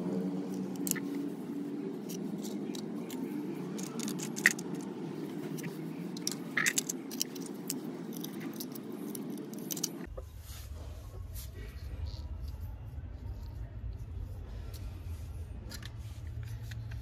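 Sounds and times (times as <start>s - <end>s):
steady low hum: 0.0s - 17.0s
clicks and clinks of small objects: 2.0s - 10.1s.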